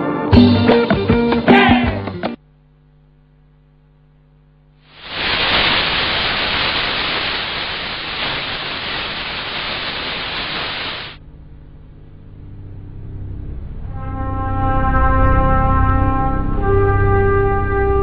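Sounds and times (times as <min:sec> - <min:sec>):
loud static hiss: 0:02.4 - 0:11.2
faint electrical hum: 0:02.4 - 0:13.8.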